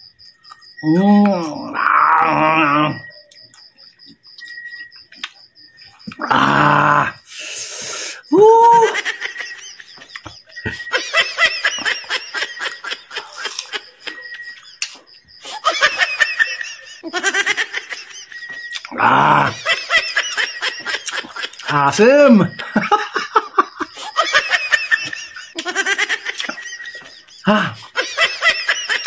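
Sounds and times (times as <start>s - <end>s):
hiss of breath: 7.3s - 8.3s
man laughing: 8.3s - 29.0s.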